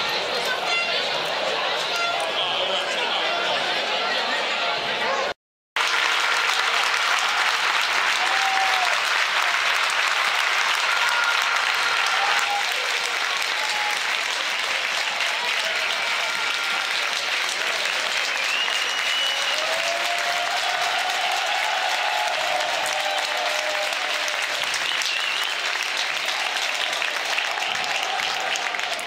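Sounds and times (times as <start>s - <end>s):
spectators clapping: 5.8s - 29.0s.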